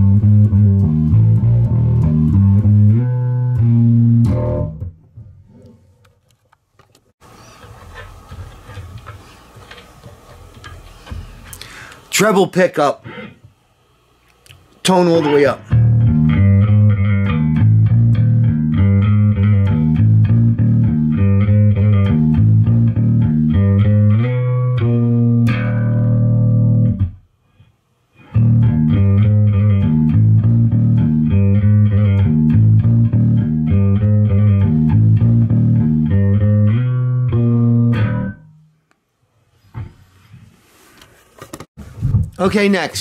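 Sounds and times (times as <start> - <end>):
electric bass riff: 0.0 - 5.2, 15.2 - 27.2, 28.2 - 38.7.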